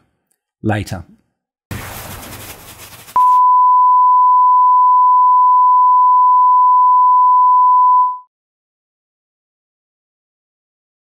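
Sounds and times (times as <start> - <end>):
steady test tone beep: 3.2 - 8.3.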